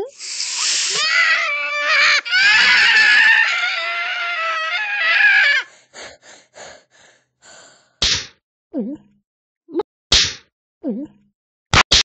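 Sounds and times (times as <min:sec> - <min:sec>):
high-pitched cartoon scream: 0:00.1 - 0:05.7.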